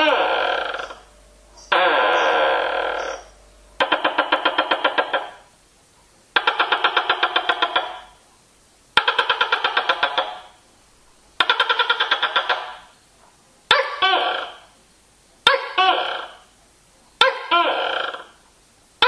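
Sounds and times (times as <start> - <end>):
gecko calling: 0.0 - 5.5, 6.4 - 8.2, 9.0 - 10.6, 11.4 - 12.9, 13.7 - 14.8, 15.4 - 16.5, 17.2 - 18.4.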